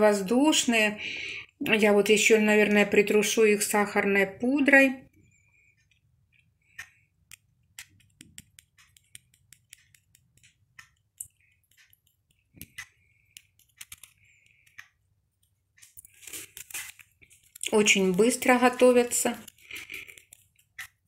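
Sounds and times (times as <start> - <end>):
mesh strainer tapping and clicking: 7.2 - 14.8.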